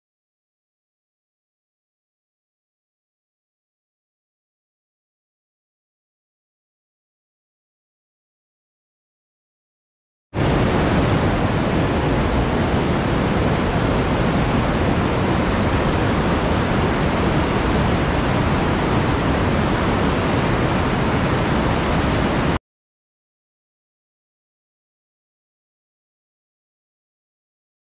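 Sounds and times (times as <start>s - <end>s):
river rapids rushing over boulders: 10.4s - 22.6s.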